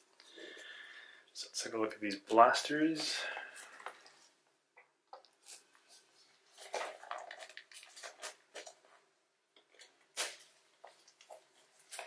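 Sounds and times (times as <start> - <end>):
packaging crinkling: 5.3 - 9.0.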